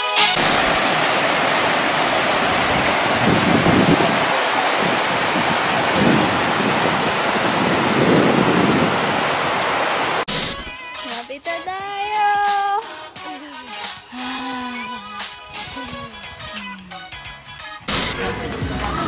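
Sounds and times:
waterfall rushing over rock: 0.4 - 10.3.

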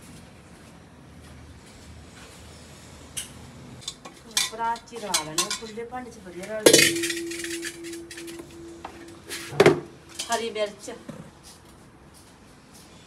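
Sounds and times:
metal pots clinking and scraping: 3.8 - 5.8, 6.6 - 10.5
pot clanking and ringing: 6.7 - 10.4.

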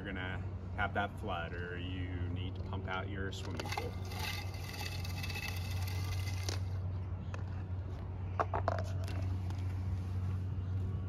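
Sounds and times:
clicks and knocks handling pump: 3.4 - 6.6
pump motor humming: 3.5 - 6.8.

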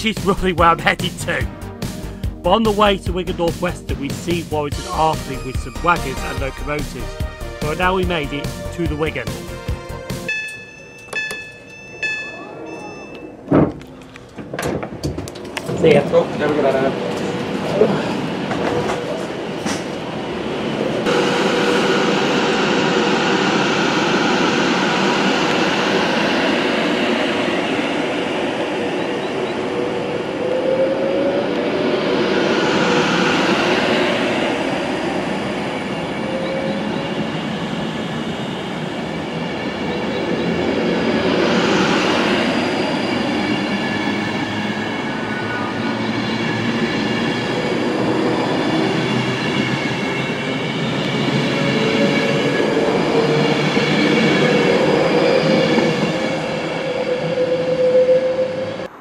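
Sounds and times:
electric train whine: 0.0 - 59.0
train wheels rumbling: 13.6 - 59.0.

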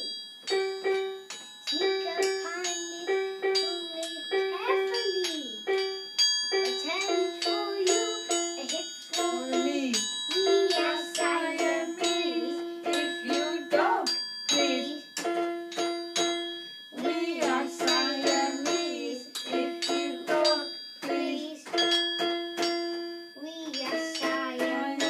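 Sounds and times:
struck metal percussion ringing: 0.0 - 25.0
toy keyboard notes: 0.0 - 25.0
person singing: 6.9 - 15.1, 17.0 - 21.8, 23.4 - 25.0.

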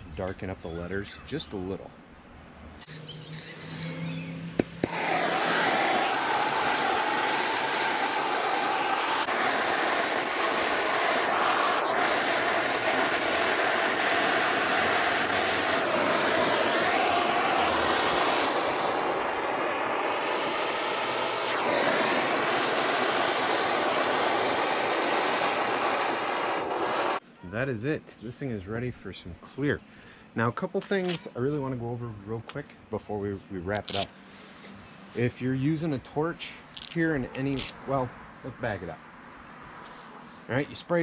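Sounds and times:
gas torch flame hissing: 2.8 - 27.2.

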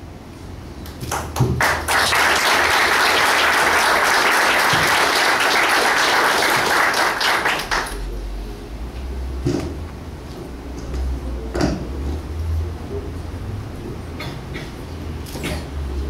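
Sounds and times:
people clapping: 0.8 - 8.2.

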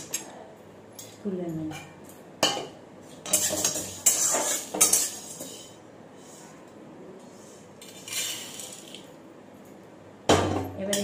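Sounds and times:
metal spatula scraping a pan: 3.2 - 6.5.

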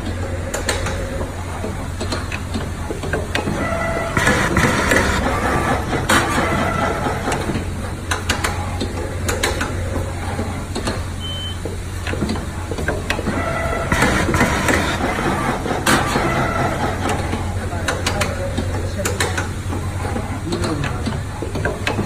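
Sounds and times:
machine clicks and knocks: 0.0 - 22.0
machine hum: 0.0 - 22.0
short high beep: 11.2 - 11.6.

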